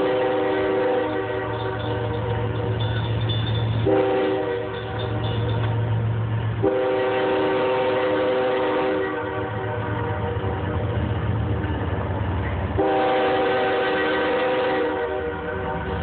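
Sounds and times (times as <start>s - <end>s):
train air horn blasts: 0.0s - 3.0s, 3.8s - 5.4s, 6.6s - 10.8s, 12.8s - 16.0s
diesel locomotive engine drone: 0.0s - 16.0s.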